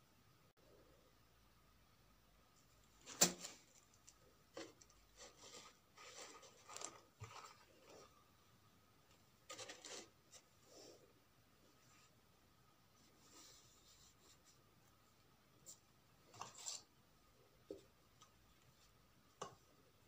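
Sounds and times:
paper rustling and scraping: 2.9 - 8.1, 9.5 - 10.5, 15.6 - 16.9.

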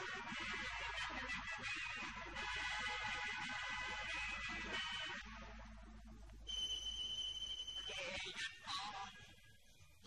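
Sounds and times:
steady high-pitched tone: 6.4 - 8.4.

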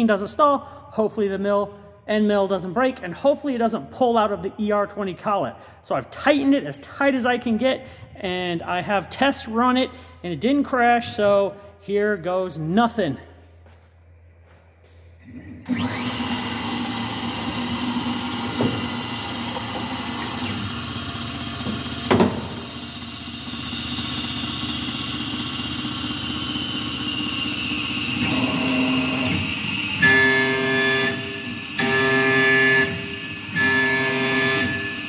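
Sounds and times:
cnc mill spindle whine: 15.4 - 35.0.

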